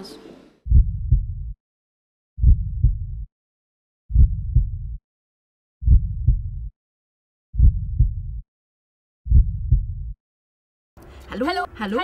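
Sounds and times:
heartbeat thumps: 0.7 - 1.6, 2.4 - 3.3, 4.1 - 5.0, 5.8 - 6.7, 7.6 - 8.4, 9.3 - 10.2.

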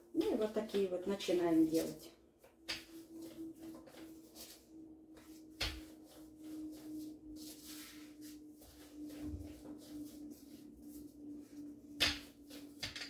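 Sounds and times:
rolling pin rolling dough: 2.7 - 13.0.

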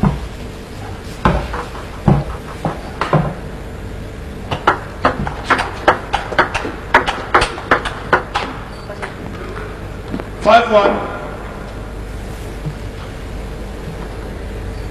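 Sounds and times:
table tennis ball knocking on table: 4.5 - 9.2.

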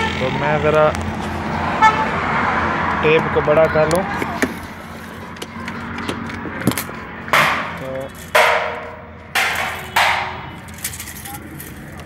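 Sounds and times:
tape measure scraping clatters: 9.7 - 12.0.

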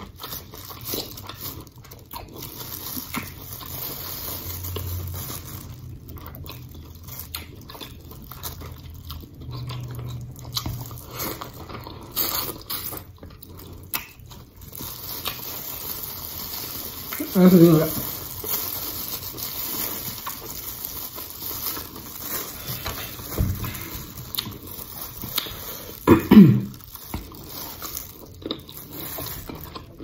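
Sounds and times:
wet chewing and lip-smacking: 5.8 - 15.5, 21.7 - 25.9.

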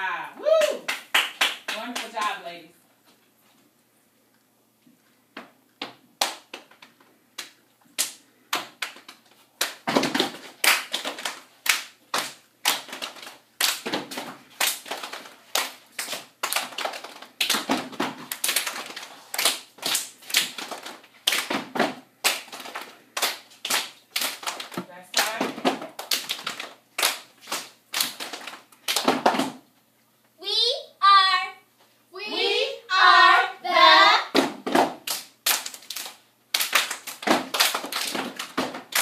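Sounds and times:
hand claps: 0.6 - 2.4, 5.8 - 29.6, 34.3 - 39.0
foot stomps: 9.8 - 11.3, 37.2 - 39.0.

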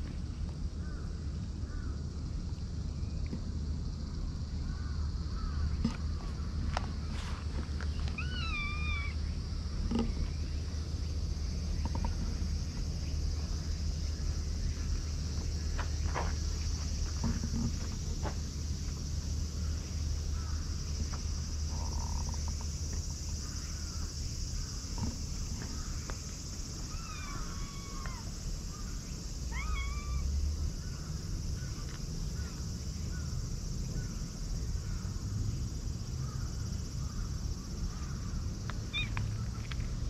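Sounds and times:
high drone of insects: 0.0 - 40.0
cats meowing: 8.1 - 9.2, 26.9 - 28.3, 29.5 - 30.4, 38.9 - 39.2.

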